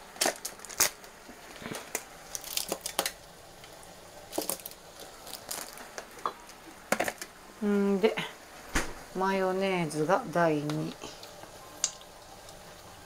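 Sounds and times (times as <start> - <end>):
plastic tube crinkling: 0.0 - 7.3.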